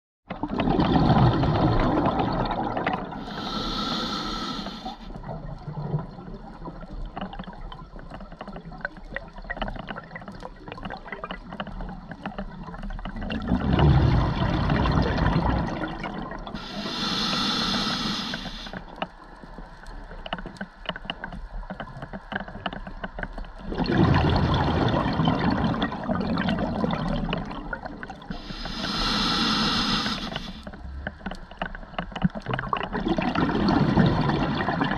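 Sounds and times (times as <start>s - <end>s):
gurgling exhaled bubbles: 0.3s - 18.8s, 23.6s - 30.9s, 32.2s - 34.9s
faint bubble crackle: 0.3s - 34.9s
regulator inhale hiss: 3.2s - 5.1s, 16.6s - 18.9s, 28.3s - 30.7s.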